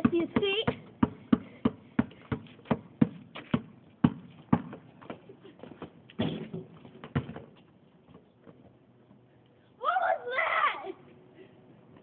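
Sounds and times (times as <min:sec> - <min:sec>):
basketball bouncing on concrete: 0:00.0 - 0:08.6.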